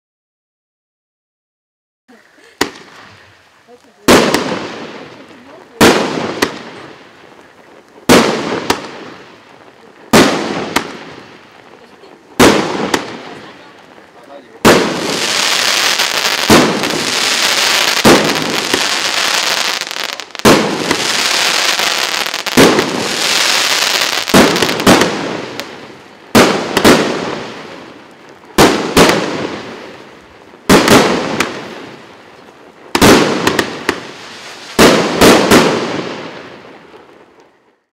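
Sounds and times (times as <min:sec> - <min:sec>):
crackling sparks hiss: 0:02.1 - 0:37.9
firework bangs: 0:02.5 - 0:03.4, 0:04.0 - 0:37.8.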